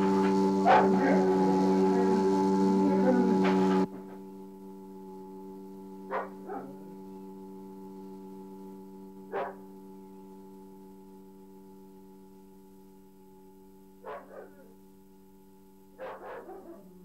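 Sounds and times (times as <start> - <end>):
drone of held tones: 0.0 - 17.0
dog barking: 0.6 - 2.2, 6.1 - 6.9, 9.3 - 9.7, 14.0 - 14.8, 16.0 - 17.0.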